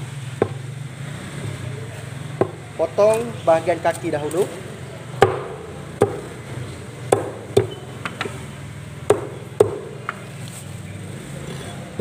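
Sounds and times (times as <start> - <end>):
cleaver chopping on wooden block: 2.4 - 2.6, 5.2 - 6.3, 7.1 - 8.4, 9.1 - 10.2.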